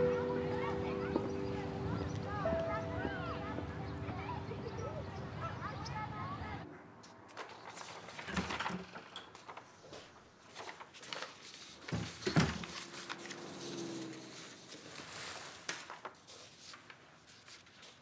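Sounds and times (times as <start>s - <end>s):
paper rustling and shuffling: 7.0s - 18.0s.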